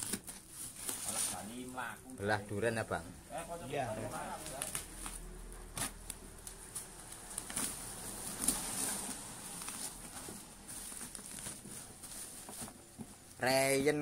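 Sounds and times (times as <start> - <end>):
plastic wrapping crinkling: 0.0 - 1.8, 4.0 - 13.7
packing tape being torn: 4.4 - 10.0.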